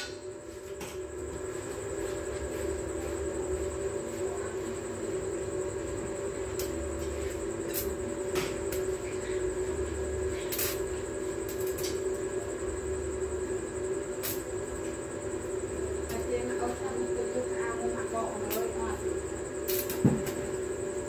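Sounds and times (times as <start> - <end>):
arc welding buzz: 0.0 - 21.0
welding pops: 10.5 - 10.8, 14.2 - 14.5, 19.6 - 20.5.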